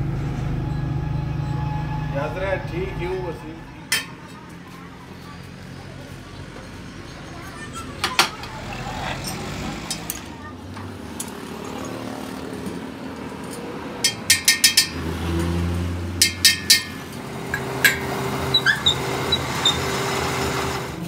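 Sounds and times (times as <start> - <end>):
lathe running hum: 17.1 - 21.0.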